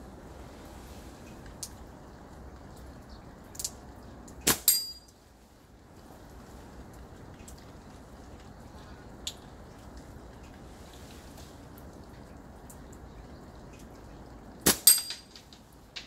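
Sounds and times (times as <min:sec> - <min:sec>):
steady rain: 0:00.0 - 0:16.0
water dripping: 0:00.0 - 0:16.0
ball hitting metal target: 0:04.5 - 0:05.0, 0:14.7 - 0:15.4.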